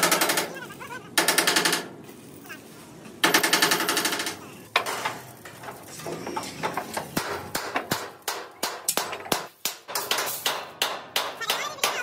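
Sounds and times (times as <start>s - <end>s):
hammer striking metal: 7.2s - 12.0s.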